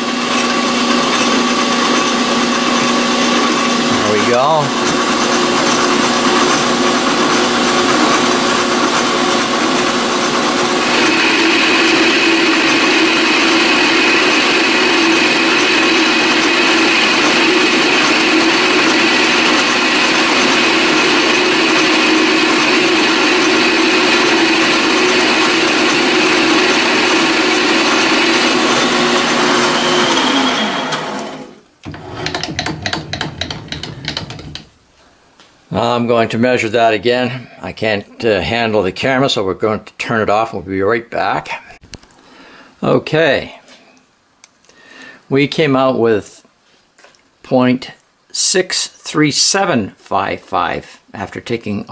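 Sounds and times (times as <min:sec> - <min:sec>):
lathe running: 0:00.0 - 0:34.7
motor winding down: 0:00.0 - 0:34.7
rapid rattle of clicks: 0:32.2 - 0:34.7.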